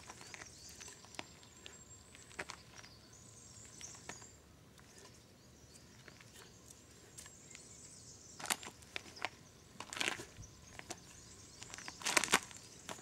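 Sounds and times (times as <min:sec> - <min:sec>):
shoes crunching on gravel: 0:00.0 - 0:03.0, 0:08.4 - 0:13.0
faint outdoor background: 0:00.0 - 0:13.0.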